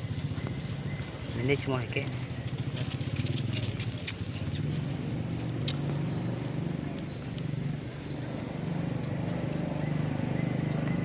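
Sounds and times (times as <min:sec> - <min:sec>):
low engine hum: 0:00.0 - 0:11.0
faint clicks: 0:02.0 - 0:04.6.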